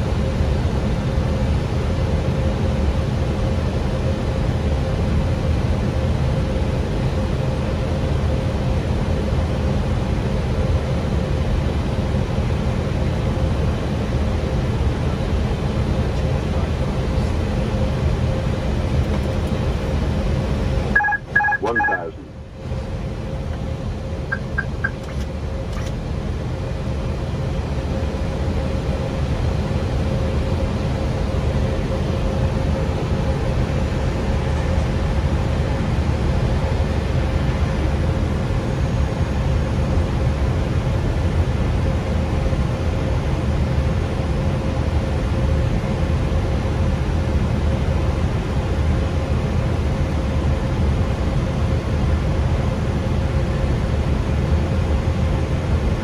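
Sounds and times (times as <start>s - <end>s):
aircraft cockpit engine roar: 0.0s - 56.0s
steady hum: 13.6s - 40.6s
short high beeps: 21.0s - 22.3s, 24.3s - 25.1s.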